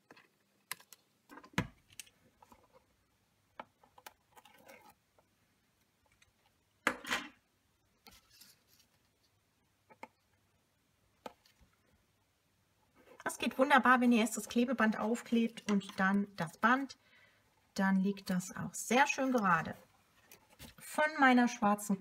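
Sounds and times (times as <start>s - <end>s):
rustling: 8.0s - 9.4s.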